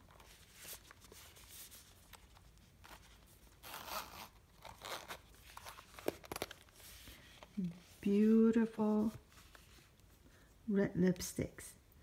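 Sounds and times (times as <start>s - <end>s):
zipper rasping open: 3.6s - 6.6s.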